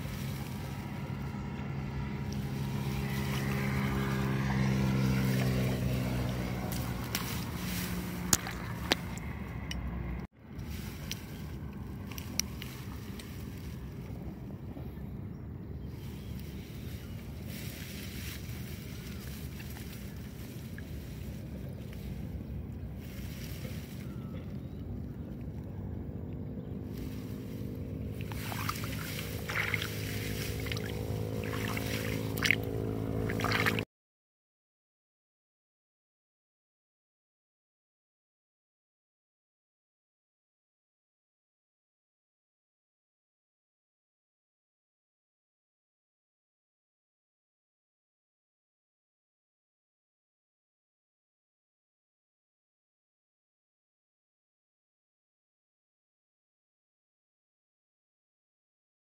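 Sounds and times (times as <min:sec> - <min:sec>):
wet grass rustling: 0:00.0 - 0:09.7, 0:10.5 - 0:14.6, 0:15.9 - 0:25.7, 0:26.7 - 0:33.8
engine running at low pitch: 0:00.0 - 0:33.8
steady low hum: 0:00.0 - 0:33.8
water splashing: 0:02.3 - 0:09.4, 0:27.1 - 0:33.8.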